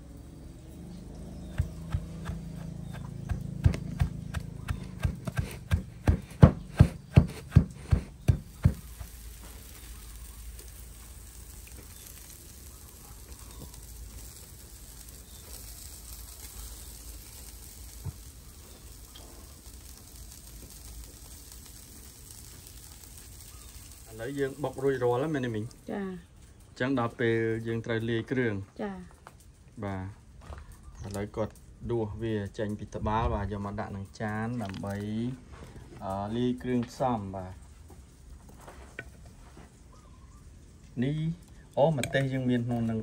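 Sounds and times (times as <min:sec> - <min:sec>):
meat sizzling on charcoal grill: 0:00.0 - 0:43.0
pestle pounding in wooden mortar: 0:01.5 - 0:09.1.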